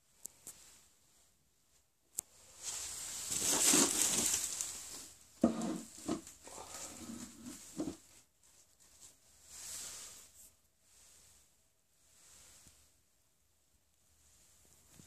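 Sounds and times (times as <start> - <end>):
rustling hiss: 2.3 - 13.0.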